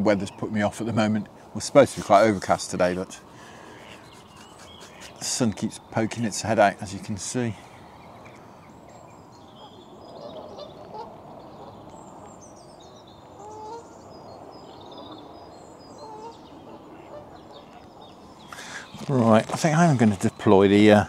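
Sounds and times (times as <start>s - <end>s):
small birds chirping: 0.0s - 21.0s
wind hiss: 1.2s - 10.1s
waterfowl honking: 3.4s - 5.2s, 9.6s - 11.8s, 13.4s - 13.9s, 16.0s - 17.8s.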